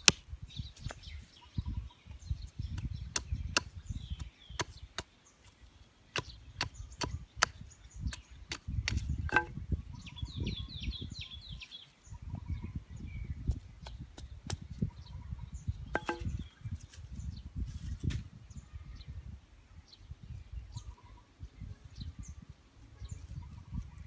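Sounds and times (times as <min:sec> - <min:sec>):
knife chopping wooden stick: 0:06.2 - 0:09.6, 0:16.0 - 0:16.4.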